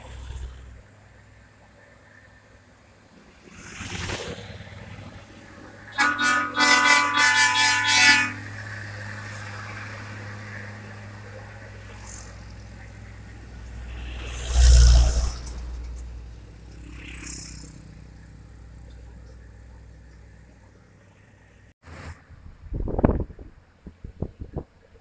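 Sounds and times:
truck horn blasts: 5.9 - 8.8.

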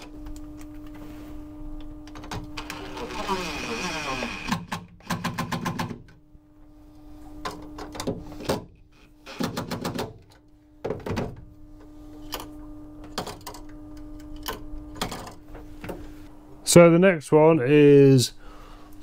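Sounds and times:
faint steady hum: 0.0 - 19.0
knocks and clunks of handling: 9.4 - 13.7.

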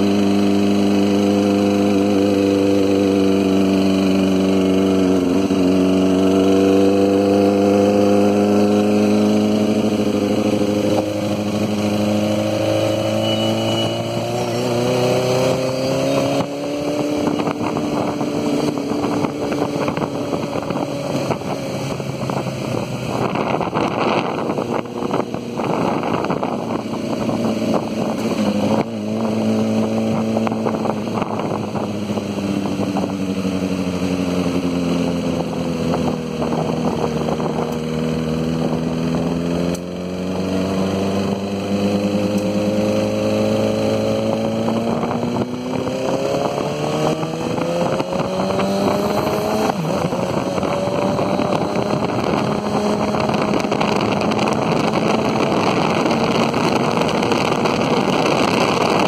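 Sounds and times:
engine running: 0.0 - 59.0
rushing road and wind noise: 0.0 - 59.0.

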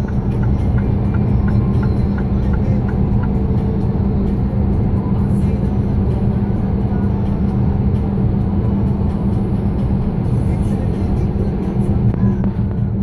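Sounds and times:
road noise: 0.0 - 13.0
vehicle engine drone: 0.0 - 13.0.

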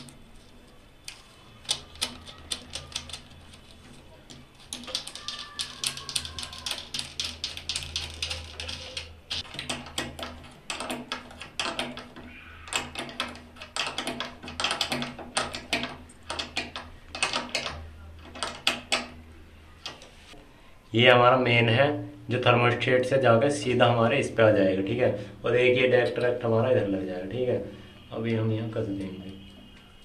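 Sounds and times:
wires and terminals clicking: 0.0 - 19.2.

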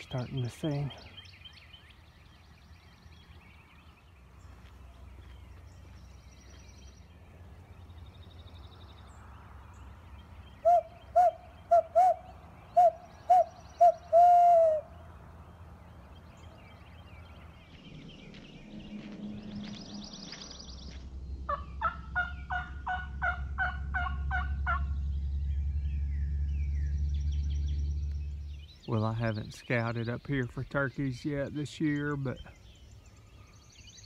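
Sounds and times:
faint birdsong: 0.0 - 34.0
owl call hoots: 10.6 - 15.0.

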